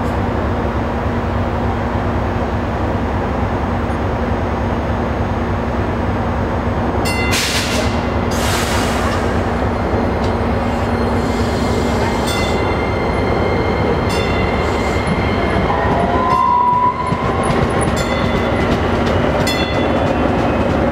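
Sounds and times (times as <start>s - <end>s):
light rail train rumbling past: 0.0s - 20.9s
steady high tone: 9.7s - 20.2s.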